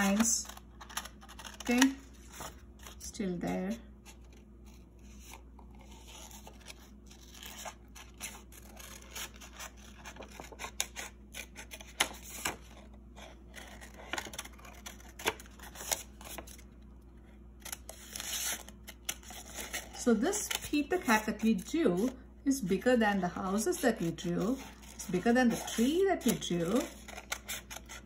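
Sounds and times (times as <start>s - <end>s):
scissors snipping paper: 0.0s - 2.0s, 23.7s - 28.0s.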